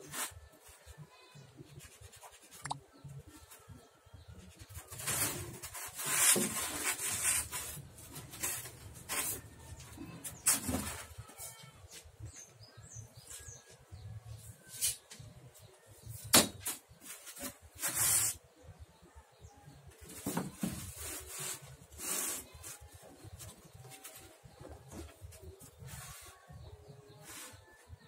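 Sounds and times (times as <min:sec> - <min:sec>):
styrofoam scraping and rubbing: 0:00.1 - 0:00.9, 0:04.5 - 0:11.6, 0:17.0 - 0:18.4, 0:20.1 - 0:24.2, 0:24.9 - 0:28.0.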